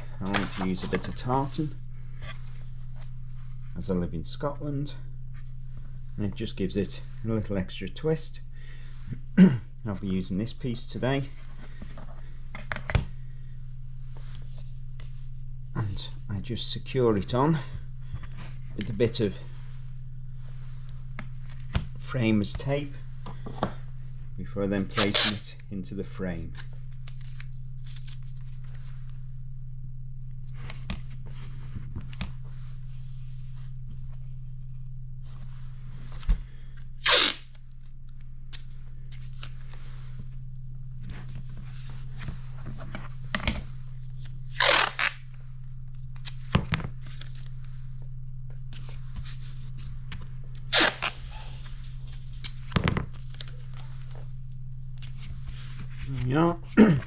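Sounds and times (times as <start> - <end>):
steady low hum: 0.0 - 57.0
tape tearing off roll: 24.9 - 25.4, 37.0 - 37.6, 44.5 - 45.2, 50.6 - 51.4.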